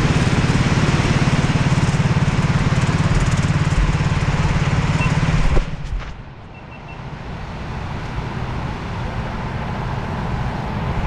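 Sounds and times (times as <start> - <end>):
kart engine idling loudly: 0.0 - 5.4
low steady engine hum: 0.0 - 11.0.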